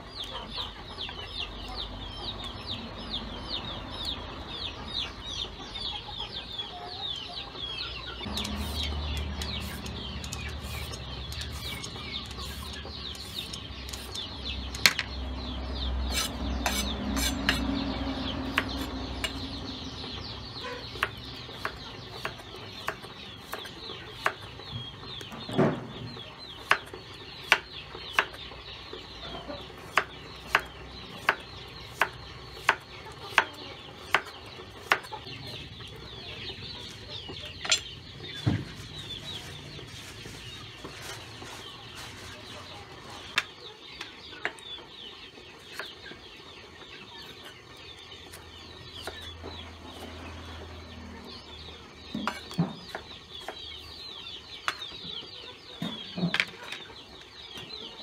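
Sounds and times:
steady chirping: 0:00.0 - 0:41.6.

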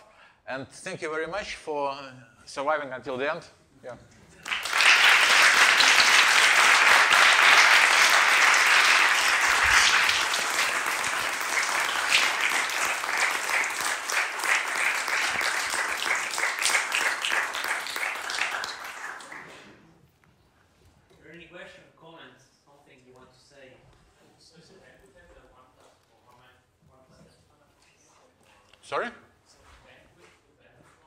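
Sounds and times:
audience applauding: 0:04.4 - 0:19.8.

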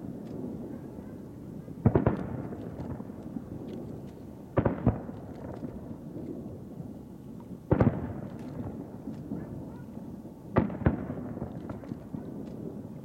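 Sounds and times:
firework shells booming: 0:01.8 - 0:03.9, 0:04.5 - 0:06.4, 0:07.7 - 0:09.7, 0:10.5 - 0:12.9.

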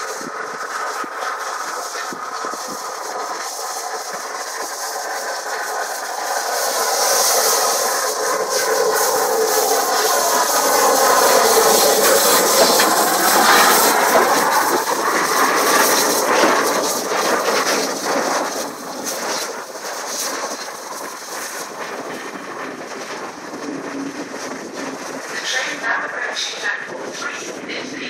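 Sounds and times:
steam hiss: 0:00.0 - 0:22.4
steam locomotive passing: 0:00.0 - 0:28.0.

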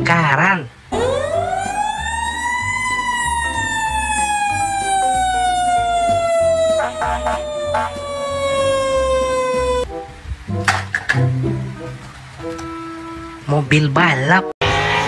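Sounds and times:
fire engine siren wailing: 0:00.9 - 0:09.9.

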